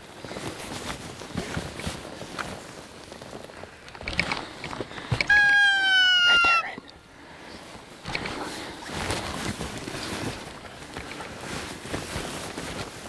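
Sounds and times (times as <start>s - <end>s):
footsteps through undergrowth: 0.0s - 5.7s, 7.4s - 13.0s
deer call bleat: 5.2s - 6.9s.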